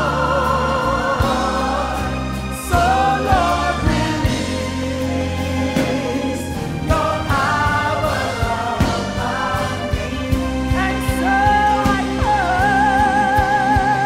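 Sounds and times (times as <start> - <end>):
backing singers: 0.0 - 14.0
bass guitar: 0.0 - 14.0
drums: 0.0 - 14.0
woman singing lead: 5.8 - 14.0.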